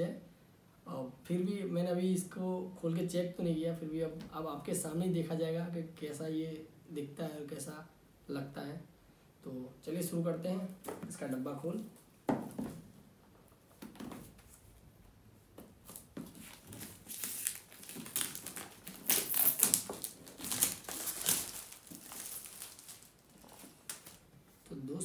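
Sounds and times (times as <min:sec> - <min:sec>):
knock on cardboard box: 0:12.3 - 0:12.8
plastic wrap crinkling: 0:15.8 - 0:24.4.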